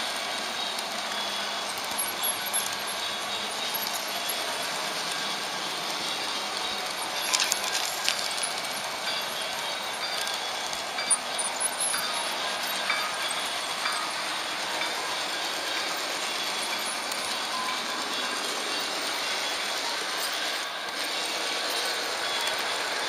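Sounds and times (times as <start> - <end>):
model train wheels rolling on rails: 0.0 - 23.0
sharp metallic clicks over rail joints: 6.6 - 8.8.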